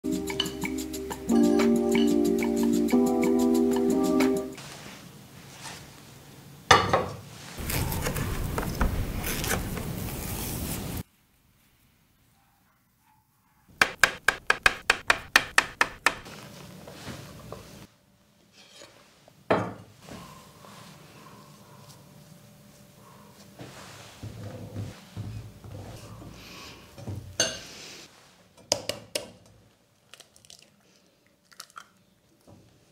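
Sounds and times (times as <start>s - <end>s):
sharp taps: 13.8s - 16.2s.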